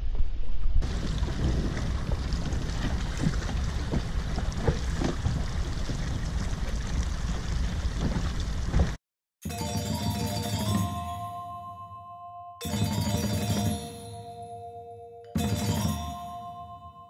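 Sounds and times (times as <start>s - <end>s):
wind noise on microphone: 0.0s - 9.0s
water splashing against dinghy: 0.8s - 9.0s
music with bell-like notes: 9.4s - 17.0s.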